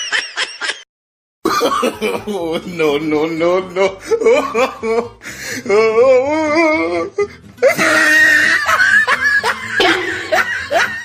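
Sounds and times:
person laughing heartily: 0:03.8 - 0:05.4, 0:07.6 - 0:11.0.

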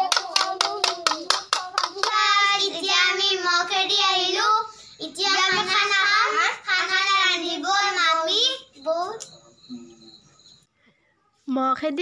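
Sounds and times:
children clapping: 0:00.0 - 0:02.8
children singing: 0:00.0 - 0:08.2.

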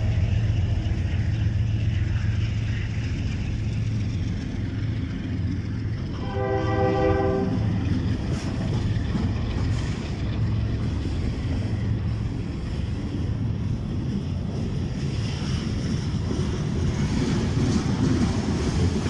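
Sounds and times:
freight cars rolling past: 0:00.0 - 0:19.0
locomotives rumbling past: 0:00.0 - 0:19.0
train horn blast: 0:06.1 - 0:07.9.

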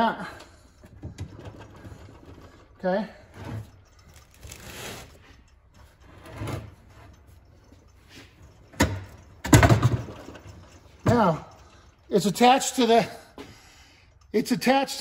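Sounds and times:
metal parts knocking and scraping: 0:00.4 - 0:15.0.

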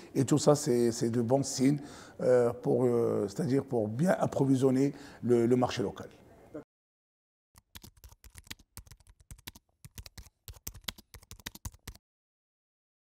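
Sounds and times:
keystroke clicks: 0:07.6 - 0:12.0.

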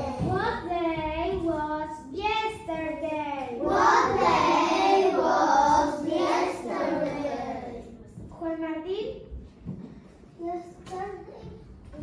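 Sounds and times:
children singing: 0:03.6 - 0:07.8.

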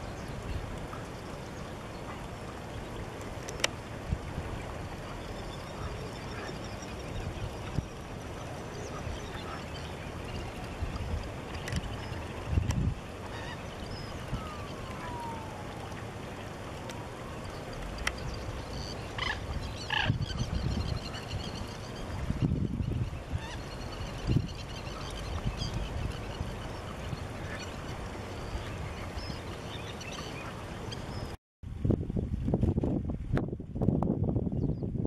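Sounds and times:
distant bird calls: 0:04.9 - 0:10.9, 0:13.2 - 0:31.3.

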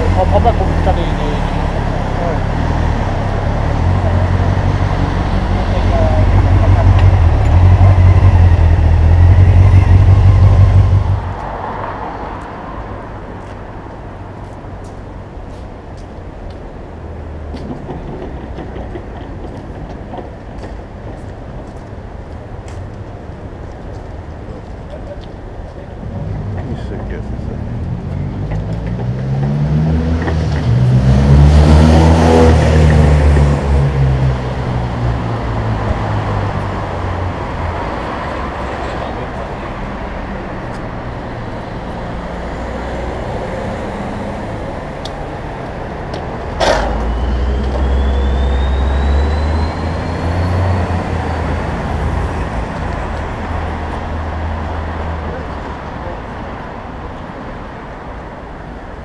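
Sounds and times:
motorcycle engine rumbling: 0:00.0 - 0:11.4
city traffic: 0:00.0 - 0:59.0.

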